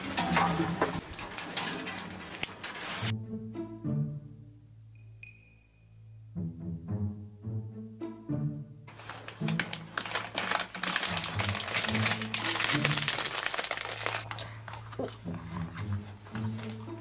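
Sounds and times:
background music with low bass: 3.1s - 8.9s
plastic packet crinkling: 8.9s - 15.9s.

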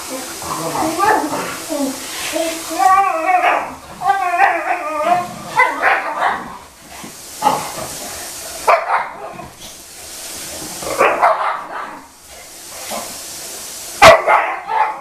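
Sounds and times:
dogs play-fighting: 0.1s - 13.4s
dogs barking: 3.2s - 6.8s, 7.4s - 9.6s, 10.8s - 12.2s, 14.0s - 15.0s.

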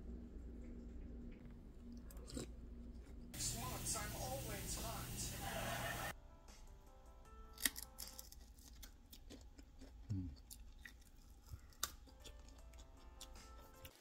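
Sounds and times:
soft background music: 0.0s - 14.0s
crunching bites of meat: 7.5s - 14.0s.

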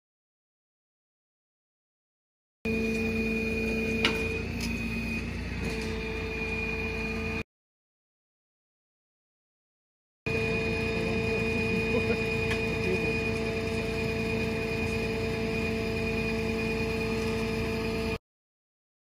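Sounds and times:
mechanical hum with low rumble: 2.7s - 7.4s, 10.3s - 18.2s.

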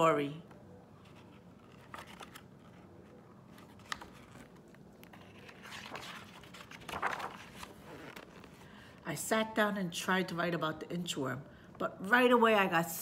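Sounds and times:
paper rustling: 1.0s - 8.8s.

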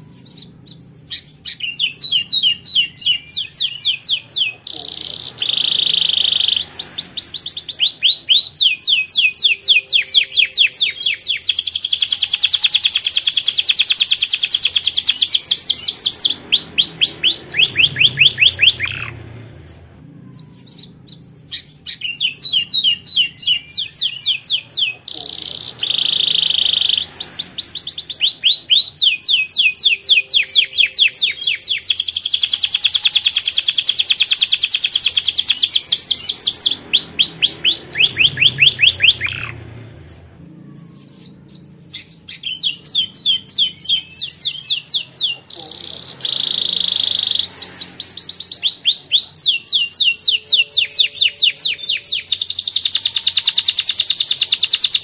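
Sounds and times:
canary singing trills: 0.0s - 55.0s
held whistle: 32.4s - 39.6s.

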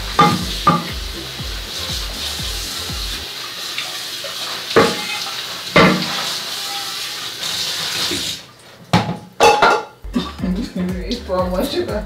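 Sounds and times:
utensils knocking: 0.2s - 1.0s.

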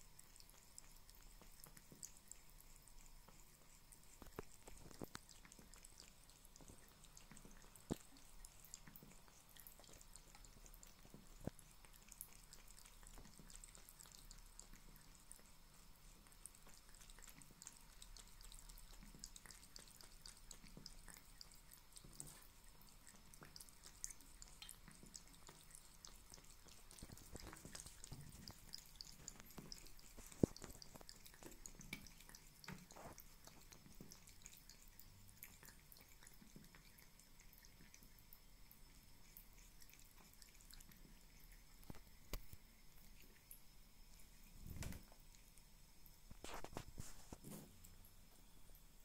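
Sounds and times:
cat lapping water: 0.0s - 49.0s
tap water trickling into sink: 22.0s - 37.1s.

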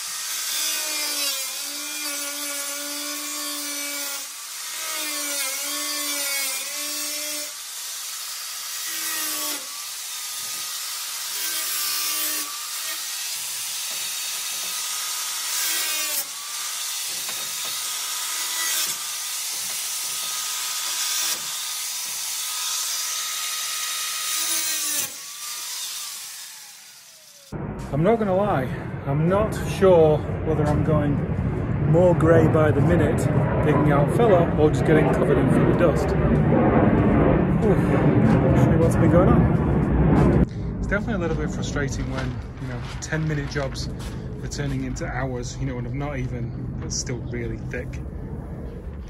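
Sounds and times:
angle grinder cutting steel: 0.0s - 27.6s.

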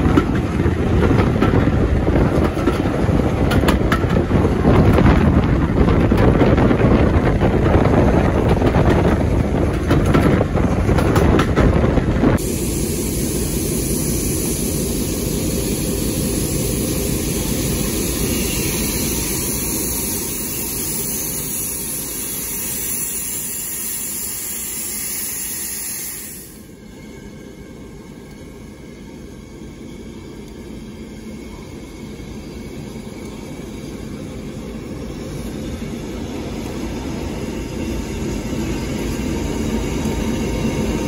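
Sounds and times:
wind buffeting microphone: 0.0s - 12.5s
railway coach rumble: 0.0s - 41.0s
steam locomotive hissing steam: 12.3s - 27.7s.

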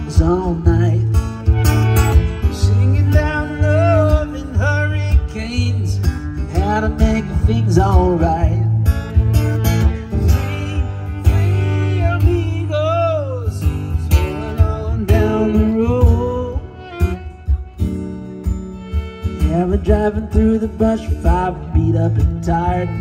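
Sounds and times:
fiddle melody: 0.0s - 23.0s
strummed acoustic guitar: 0.0s - 23.0s.

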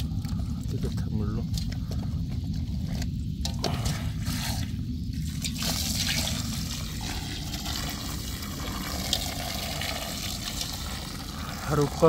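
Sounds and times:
water from hose splashing into basin: 3.4s - 12.0s.

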